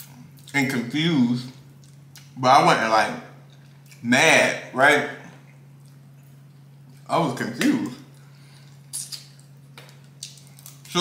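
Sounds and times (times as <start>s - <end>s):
wet mouth smacks eating: 8.6s - 10.9s.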